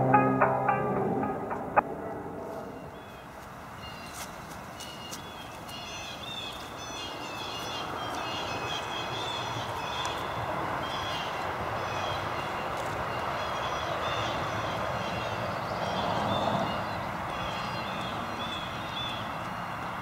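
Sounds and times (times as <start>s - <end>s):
steady rushing noise: 0.0s - 3.8s
songbirds chirping and twittering: 2.1s - 20.0s.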